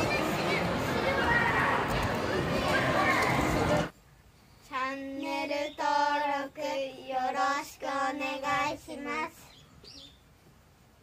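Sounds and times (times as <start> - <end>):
child singing: 4.7 - 9.5.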